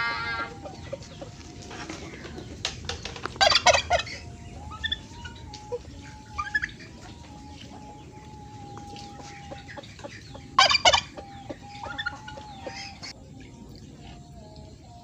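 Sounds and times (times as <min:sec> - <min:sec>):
chicken squawk: 0:00.0 - 0:02.6, 0:03.4 - 0:08.0, 0:08.8 - 0:13.1
chickens clucking: 0:00.0 - 0:14.8.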